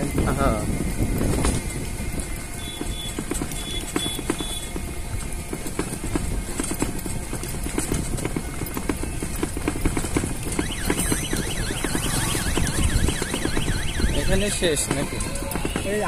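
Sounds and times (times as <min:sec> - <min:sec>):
low wind rumble: 0:00.0 - 0:16.0
vehicle rattling knocks: 0:00.0 - 0:16.0
electronic warbling tone: 0:10.6 - 0:14.4.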